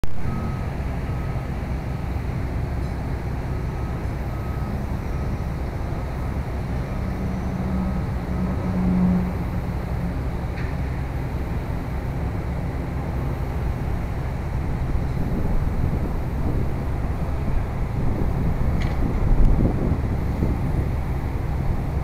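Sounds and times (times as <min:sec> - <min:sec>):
diesel excavator engines rumbling: 0:00.0 - 0:22.0.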